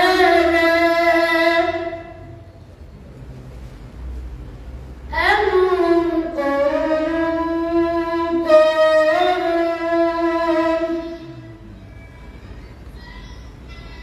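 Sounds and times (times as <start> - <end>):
boy chanting melodically: 0.0 - 2.5, 5.1 - 11.7.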